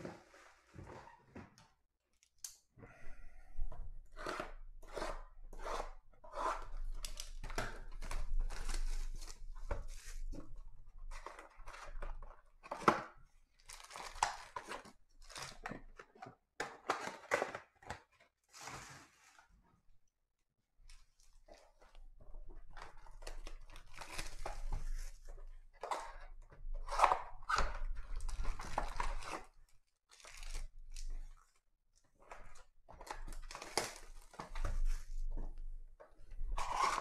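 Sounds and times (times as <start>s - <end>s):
wrapper and cardboard ripping: 13.6s - 15.7s, 23.4s - 24.7s, 30.1s - 31.0s, 33.0s - 34.4s, 36.5s - 37.0s.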